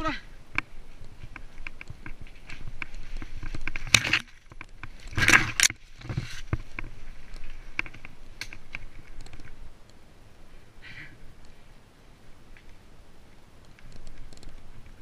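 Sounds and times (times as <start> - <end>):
mountain bike rattling: 0.6 - 9.7.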